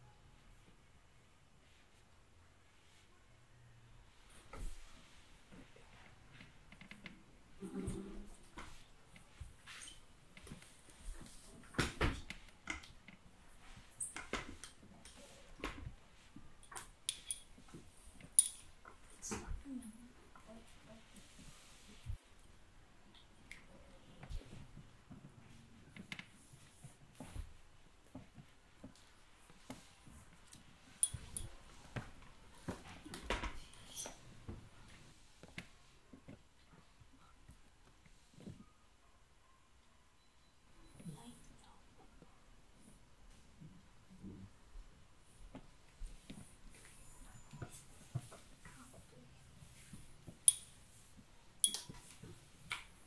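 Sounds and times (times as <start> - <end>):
clothes rustling: 4.0 - 38.8.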